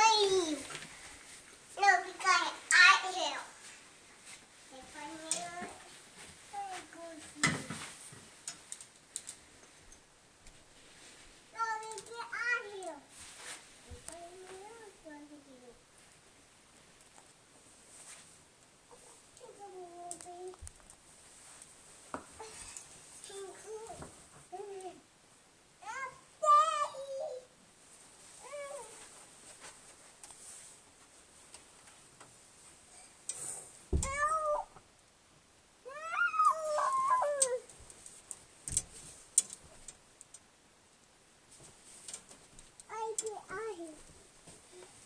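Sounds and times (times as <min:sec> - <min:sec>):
cat meowing: 0:34.0 - 0:34.7.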